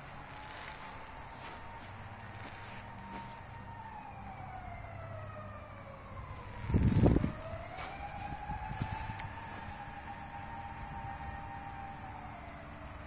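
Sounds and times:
wailing siren: 0:00.0 - 0:13.0.

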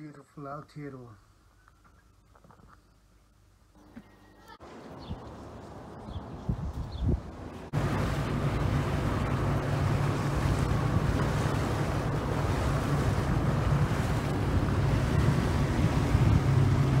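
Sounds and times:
boat engine hum: 0:03.7 - 0:17.0
wind buffeting microphone: 0:04.9 - 0:17.0
water rushing past: 0:07.2 - 0:17.0.

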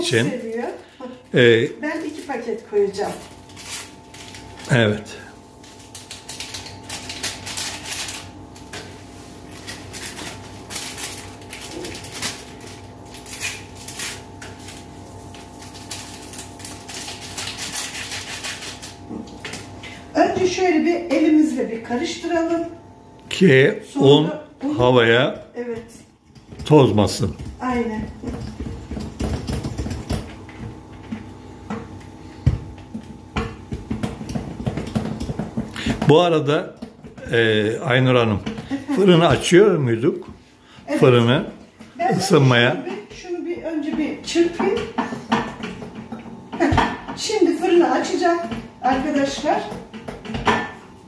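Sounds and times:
paper packets crinkling and tearing: 0:01.3 - 0:19.1.

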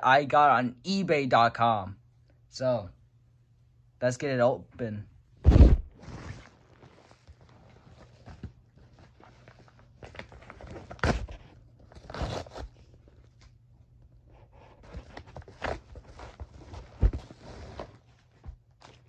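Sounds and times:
package wrapping rustling: 0:06.5 - 0:13.5.

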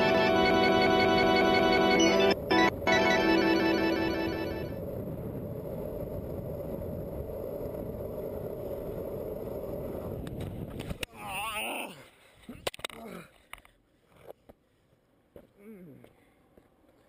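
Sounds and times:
longboard wheels rolling on asphalt: 0:00.0 - 0:11.1.

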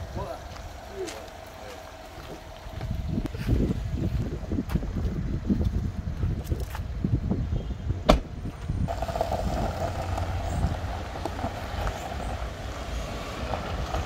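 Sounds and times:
wind rumble on microphone: 0:00.0 - 0:14.0
car door shutting: 0:08.0 - 0:08.7.

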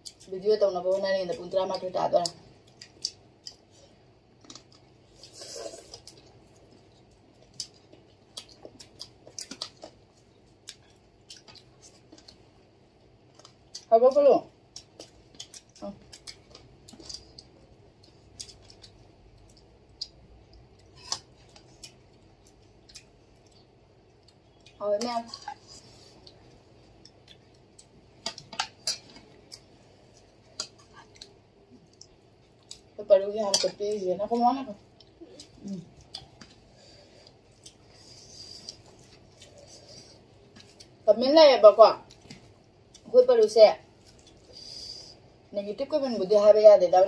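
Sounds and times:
wet chewing and lip smacks: 0:14.7 - 0:24.8, 0:26.2 - 0:32.9.

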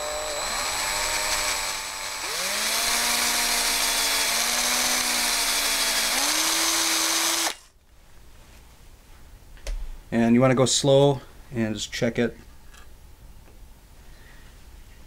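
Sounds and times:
hand drill motor whine: 0:00.0 - 0:07.7.

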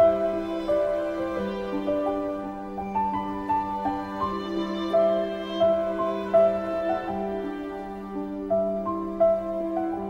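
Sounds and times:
slow instrumental melody: 0:00.0 - 0:10.0.

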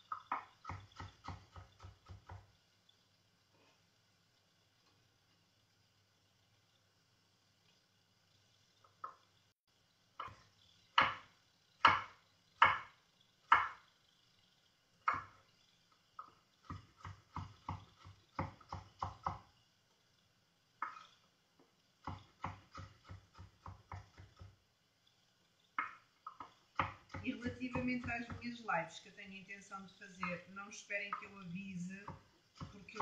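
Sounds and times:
knife chopping on wooden board: 0:00.2 - 0:02.5, 0:11.0 - 0:13.8, 0:16.2 - 0:19.5, 0:22.0 - 0:24.6, 0:25.8 - 0:28.5, 0:32.0 - 0:33.0.

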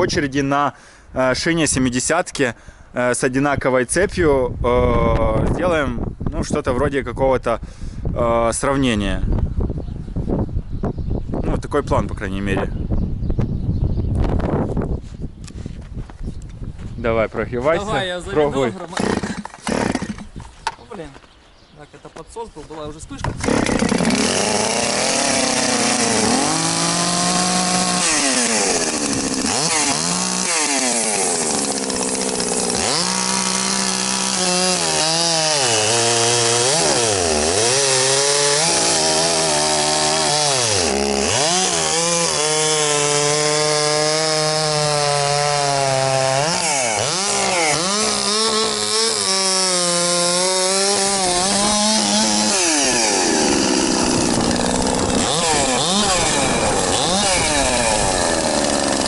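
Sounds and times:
chainsaw revving and idling: 0:18.8 - 0:20.4, 0:23.3 - 0:59.0.

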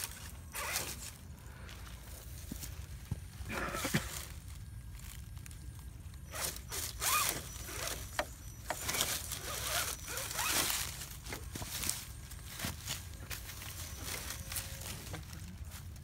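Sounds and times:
scraping and crunching over stones: 0:00.0 - 0:16.0
rc car motor whirring: 0:06.2 - 0:12.7.

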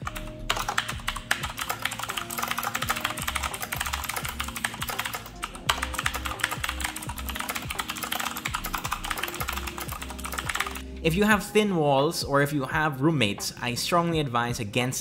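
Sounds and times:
clicky mechanical keyboard typing: 0:00.0 - 0:10.8.

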